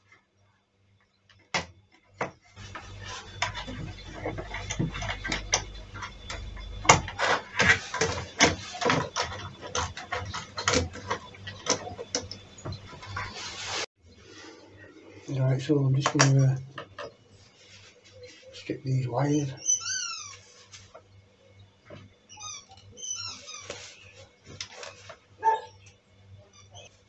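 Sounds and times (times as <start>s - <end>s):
rustle of handling: 2.5s - 14.6s, 16.9s - 18.7s, 20.0s - 21.1s, 23.2s - 25.4s.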